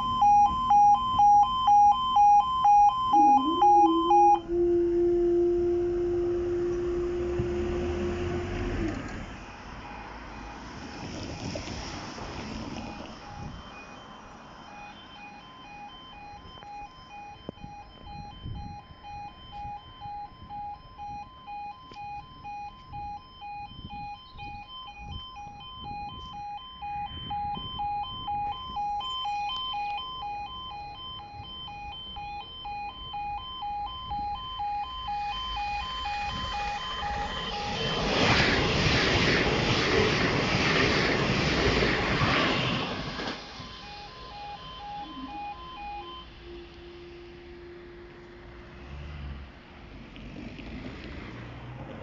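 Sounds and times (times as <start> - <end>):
low steady hum: 0.0 - 8.6, 43.8 - 48.9
two-tone crossing alarm: 0.0 - 49.6
train rushing past: 36.2 - 44.4.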